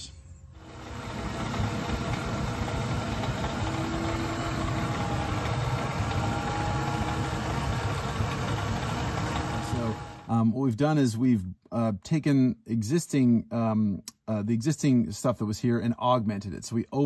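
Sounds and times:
insulation blowing machine humming: 0.5s - 10.4s.

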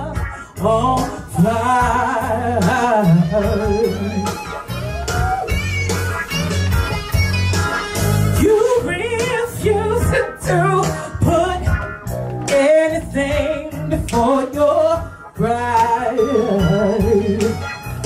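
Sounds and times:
instrumental backing with bass line: 0.0s - 18.0s
woman singing into microphone: 8.4s - 11.9s, 12.5s - 17.6s.

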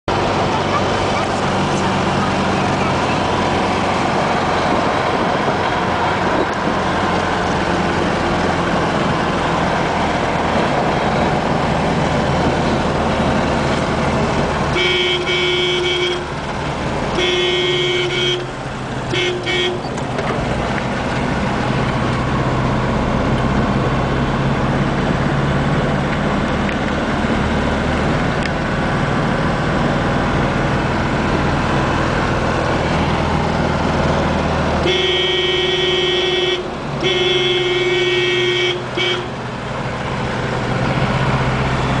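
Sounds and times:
car engine and road noise: 0.0s - 42.0s
car horn blasts: 14.7s - 16.4s, 17.1s - 19.9s, 34.8s - 39.4s.

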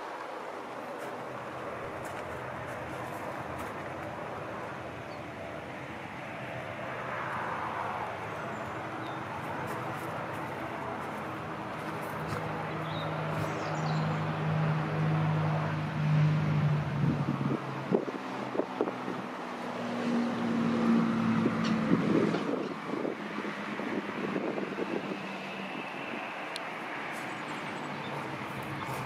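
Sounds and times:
propeller aircraft engine drone: 0.0s - 29.0s
wind on microphone: 16.9s - 19.4s, 21.1s - 26.3s.

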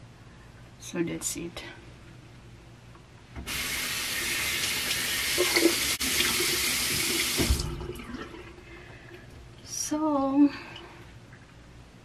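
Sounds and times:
faucet water running into sink: 3.5s - 8.5s.

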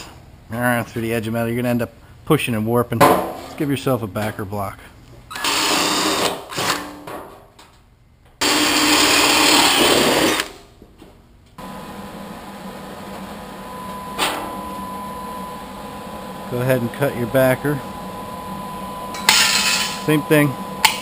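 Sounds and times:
steady background hum: 0.0s - 21.0s
drill boring through metal: 5.3s - 6.7s, 8.4s - 10.4s.

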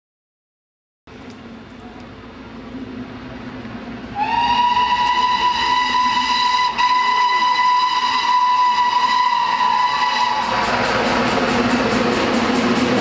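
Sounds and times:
train rumbling: 1.1s - 13.0s
steam locomotive whistle: 4.1s - 13.0s.

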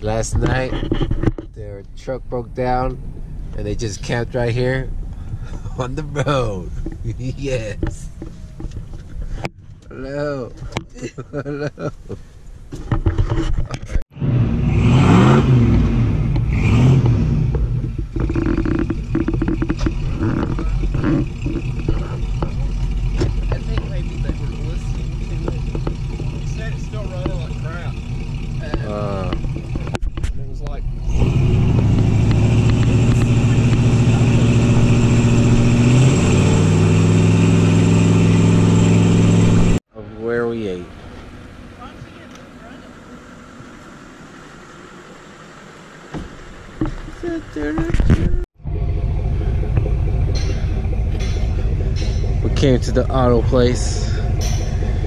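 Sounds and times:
car engine revving: 14.1s - 55.0s.

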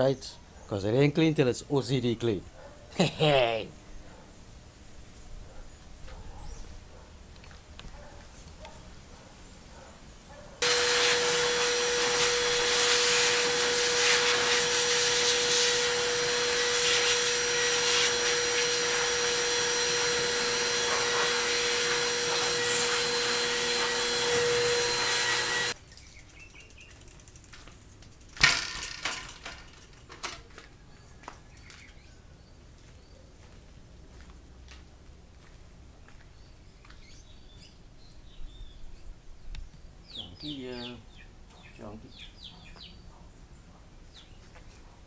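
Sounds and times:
shop vacuum running: 10.6s - 25.8s.

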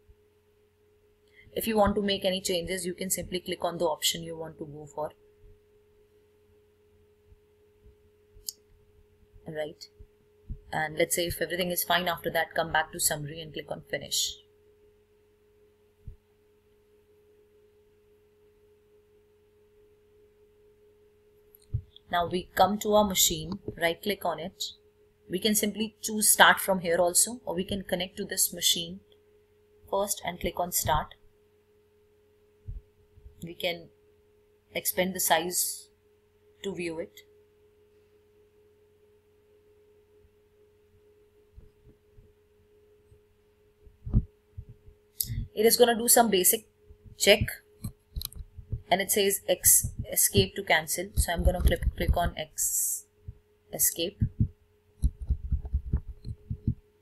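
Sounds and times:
faint electrical hum: 0.0s - 57.0s
faint steady tone: 0.0s - 57.0s
soft low thumps: 7.3s - 10.8s, 21.7s - 23.9s, 32.6s - 33.4s, 41.6s - 42.4s, 43.1s - 45.6s, 46.8s - 52.5s, 53.2s - 53.5s, 54.1s - 56.9s.

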